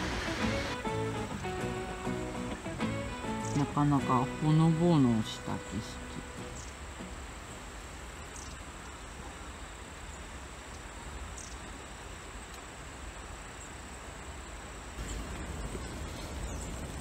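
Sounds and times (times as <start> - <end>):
hiss over low rumble: 0.0 - 17.0
insects trilling: 0.0 - 17.0.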